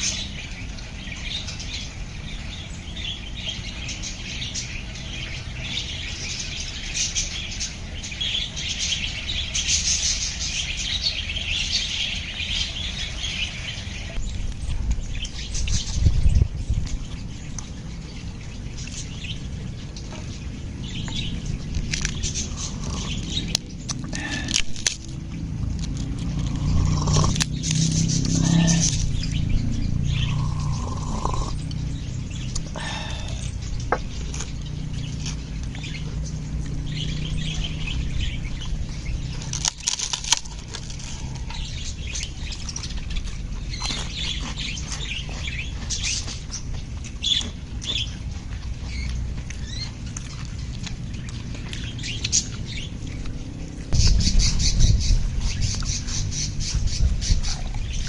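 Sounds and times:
birds chirping and calling: 0:00.0 - 0:58.0
steady low rumble: 0:10.6 - 0:58.0
rapid harsh bird calls: 0:17.8 - 0:25.0, 0:26.2 - 0:53.2.

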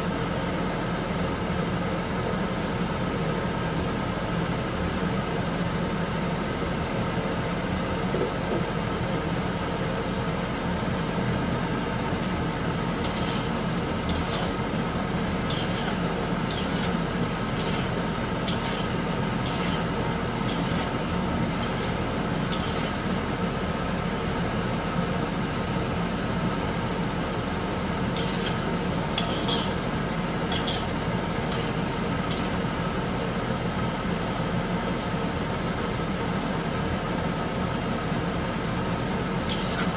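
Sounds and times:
steady mechanical drone: 0:00.0 - 0:39.9
fat and water simmering in wok: 0:05.4 - 0:35.8, 0:36.6 - 0:39.9
metal spatula scraping wok: 0:13.0 - 0:23.0, 0:28.1 - 0:32.6, 0:39.5 - 0:39.9.

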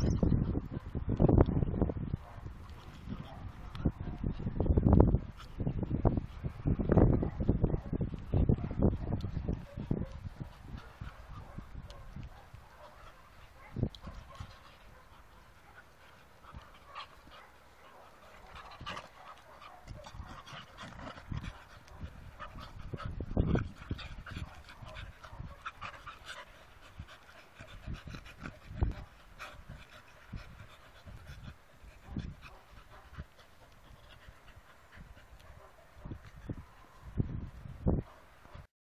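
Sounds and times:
dogs panting: 0:01.8 - 0:37.2
dogs scuffling on grass: 0:09.3 - 0:37.0.

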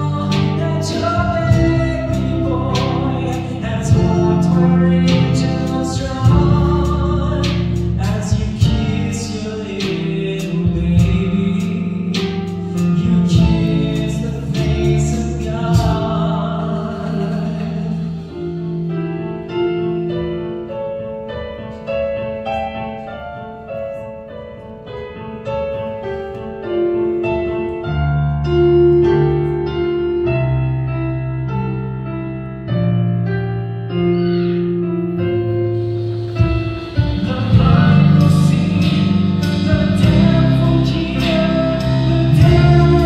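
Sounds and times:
bass line: 0:00.0 - 0:20.6, 0:28.0 - 0:43.0
electric keyboard piano melody: 0:00.0 - 0:43.0
held chords: 0:00.0 - 0:43.0
drum and cymbal hits: 0:00.3 - 0:16.4, 0:35.8 - 0:43.0.

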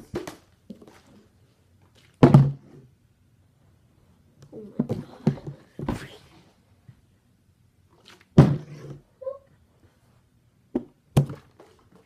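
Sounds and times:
plastic bottle thunking down: 0:02.2 - 0:02.7, 0:08.3 - 0:08.8, 0:10.8 - 0:11.7.

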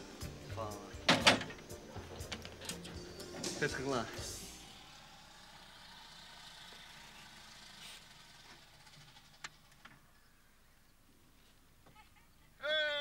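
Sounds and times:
distant vehicle engine hum: 0:00.0 - 0:10.8.

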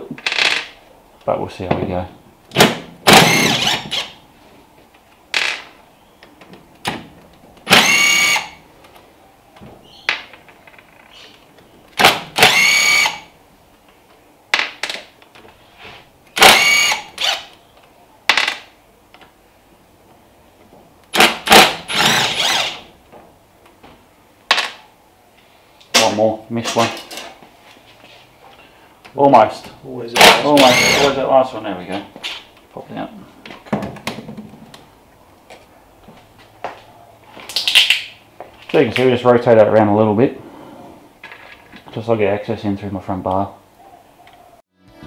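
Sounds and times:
cordless drill motor whirring: 0:03.2 - 0:04.1, 0:07.7 - 0:08.6, 0:12.4 - 0:13.2, 0:16.4 - 0:17.5, 0:21.9 - 0:22.8, 0:30.6 - 0:31.1.

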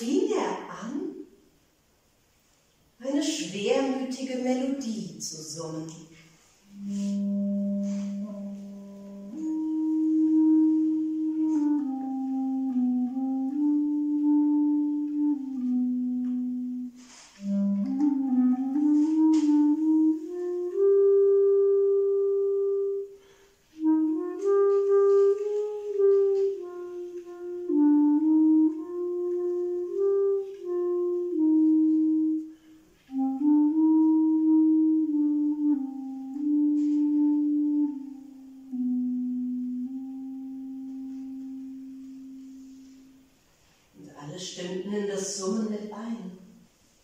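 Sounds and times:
clarinet playing slow melody: 0:06.4 - 0:43.9.

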